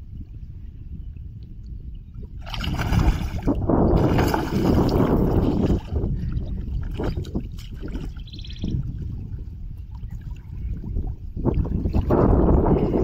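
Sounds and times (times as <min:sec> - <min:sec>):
fish thrashing and splashing: 0:02.4 - 0:06.1.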